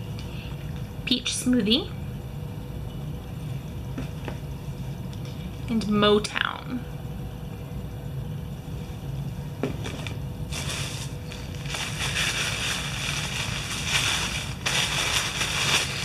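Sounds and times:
packaging crinkling and rustling: 9.9s - 16.0s.

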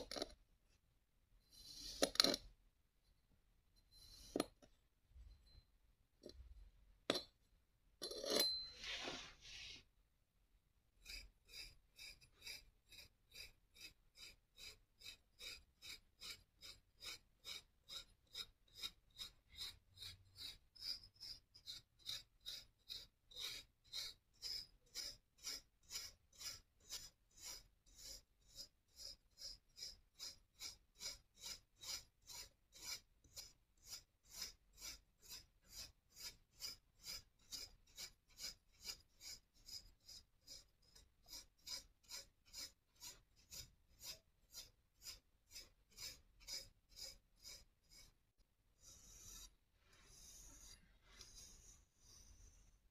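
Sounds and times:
fork scraping through sand: 1.5s - 2.4s, 8.2s - 9.9s, 48.8s - 52.7s.

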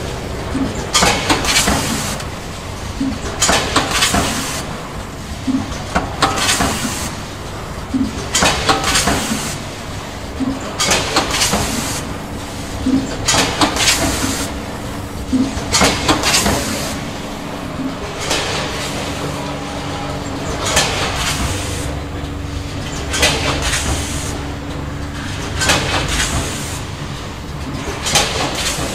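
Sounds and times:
packing machine clatter and hiss: 0.0s - 28.9s
steady mechanical background: 0.0s - 28.9s.

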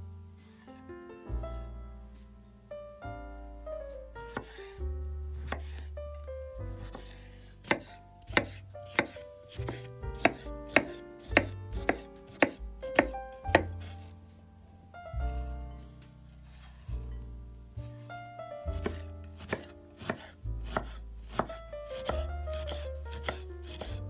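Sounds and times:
background music: 0.0s - 24.0s
knife knocking on cutting board: 7.7s - 13.8s.

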